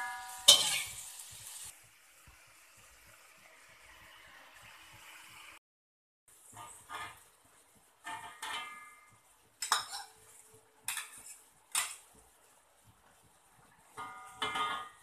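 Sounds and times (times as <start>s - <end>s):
spatula scraping a wok: 0.0s - 1.7s, 6.3s - 12.6s.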